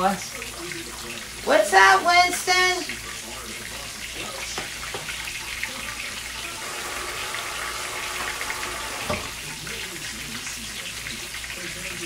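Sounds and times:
faucet running into sink: 0.0 - 12.0.

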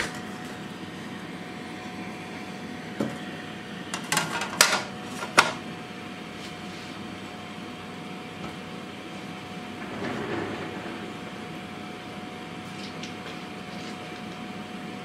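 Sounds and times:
steady hum: 5.6 - 15.0.

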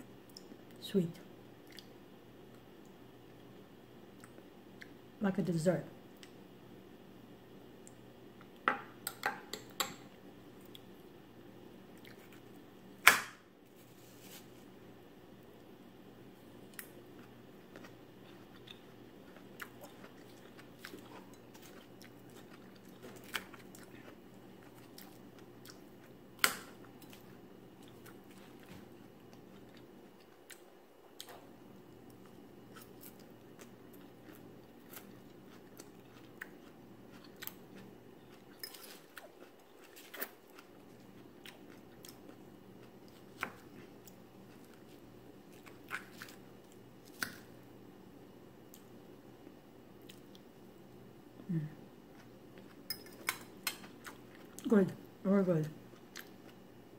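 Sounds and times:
low steady hum: 0.0 - 56.9
person chewing and biting food: 32.1 - 47.5.

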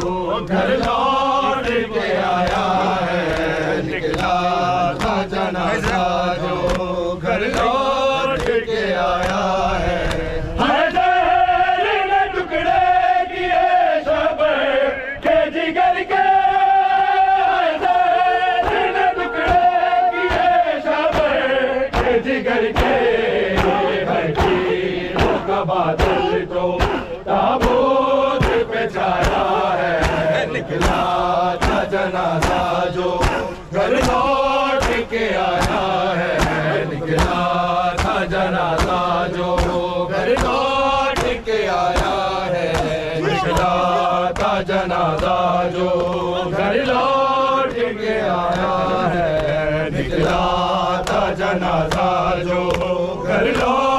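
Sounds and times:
chest-beating slaps: 0.0 - 8.6, 18.6 - 46.3, 50.2 - 53.8
men chanting over loudspeakers: 0.0 - 53.9.

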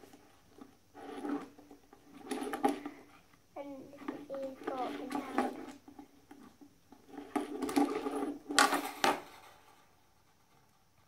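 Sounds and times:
plastic toy clattering on table: 4.0 - 9.8.

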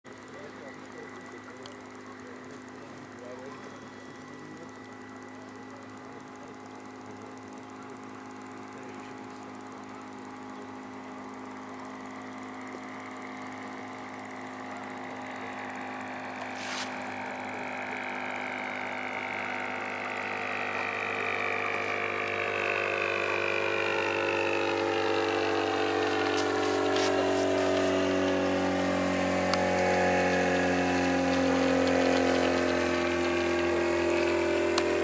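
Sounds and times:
click: 1.6 - 1.8.

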